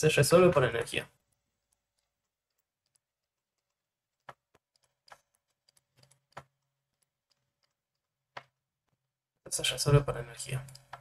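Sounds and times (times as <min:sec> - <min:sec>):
stylus tapping on tablet: 0:01.2 - 0:09.1, 0:10.7 - 0:11.0.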